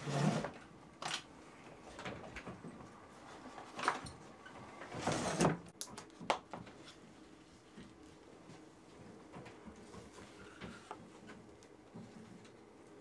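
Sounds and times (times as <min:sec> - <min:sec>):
wooden drawer scraping: 0:00.0 - 0:00.6, 0:04.8 - 0:05.7.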